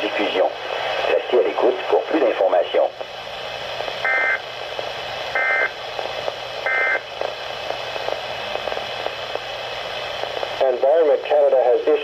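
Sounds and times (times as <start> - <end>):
radio hiss: 0.0 - 12.0.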